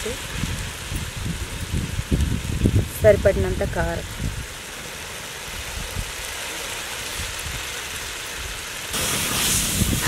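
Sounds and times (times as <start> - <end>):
food sizzling in a pot: 5.7 - 10.0.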